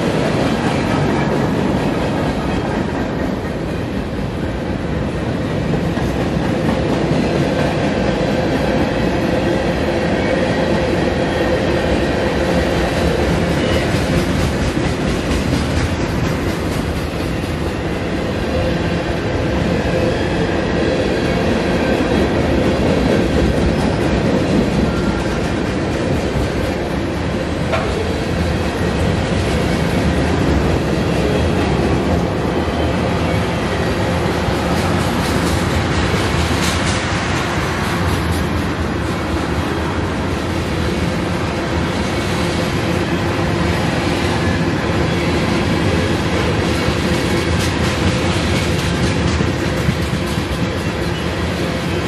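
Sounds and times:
train wheels rumbling on rails: 0:00.0 - 0:52.0.

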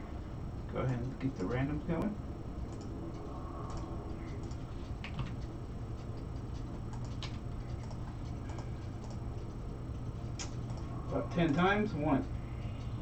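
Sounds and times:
steady low hum: 0:00.0 - 0:13.0
computer mouse clicks: 0:02.6 - 0:13.0.

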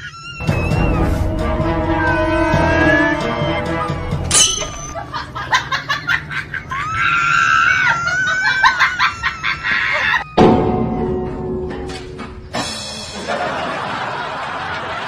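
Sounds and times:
young child screaming and squealing: 0:00.0 - 0:01.2, 0:02.0 - 0:03.8, 0:06.7 - 0:10.4.

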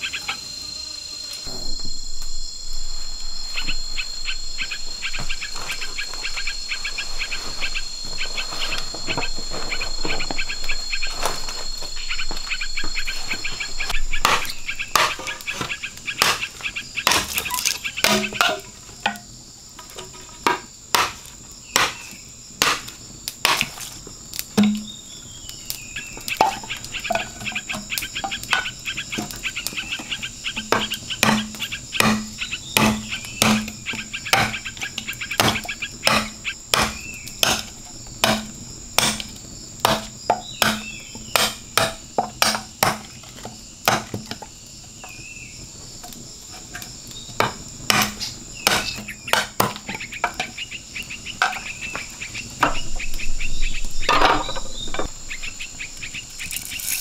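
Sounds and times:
insect drone: 0:00.0 - 0:57.0
machete chopping bamboo: 0:14.2 - 0:18.6, 0:20.9 - 0:23.8, 0:30.6 - 0:34.7, 0:35.4 - 0:44.4, 0:47.4 - 0:49.9.

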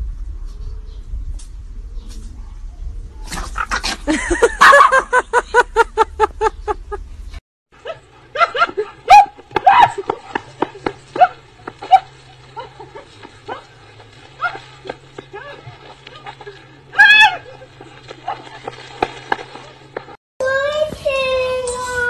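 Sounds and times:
dog barking: 0:04.6 - 0:05.0, 0:07.8 - 0:12.7.

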